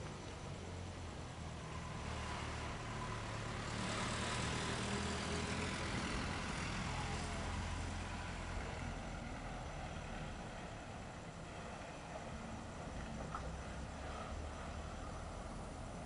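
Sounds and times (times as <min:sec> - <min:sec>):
distant train rumble: 0:06.0 - 0:16.0.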